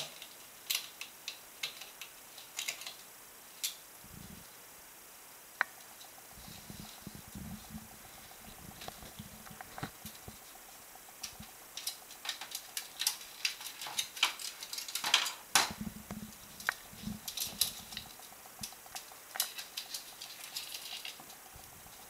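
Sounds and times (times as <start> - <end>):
claws clicking on plastic and floor: 0.0 - 3.8, 8.8 - 22.0.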